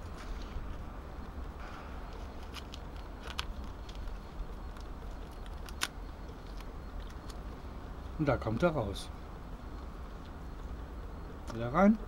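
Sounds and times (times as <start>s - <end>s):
steady low rumble: 0.0s - 12.0s
tape crinkling clicks: 1.2s - 7.6s.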